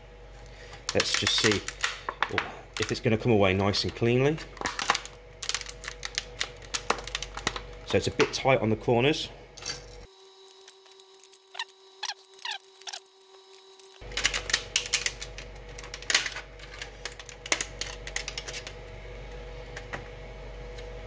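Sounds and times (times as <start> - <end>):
plastic squeaking as it flexes: 10.8 - 13.7.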